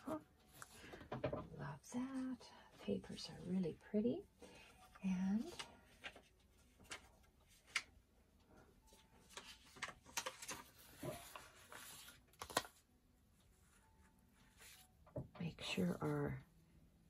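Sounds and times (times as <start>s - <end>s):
paper and fabric rustling: 2.0s - 12.8s, 13.5s - 14.9s.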